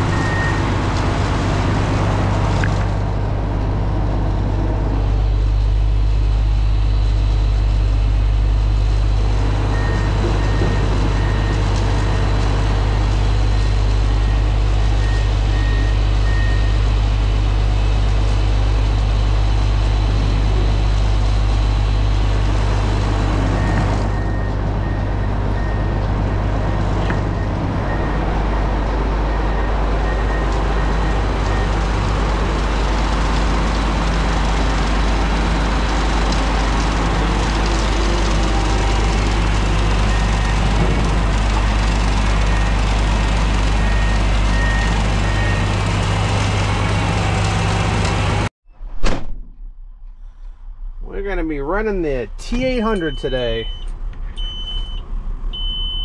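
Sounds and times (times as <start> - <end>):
diesel truck engine idling: 0.0 - 48.5, 49.8 - 56.0
backup alarm beeping: 52.4 - 56.0.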